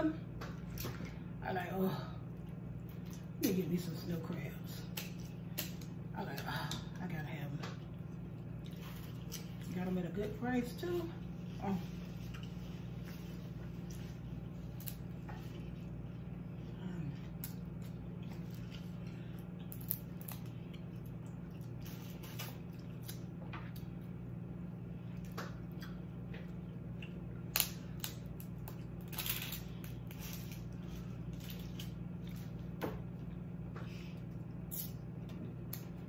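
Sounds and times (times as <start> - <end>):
steady low hum: 0.0 - 36.0
crab shells cracking: 19.6 - 20.8, 27.4 - 30.6.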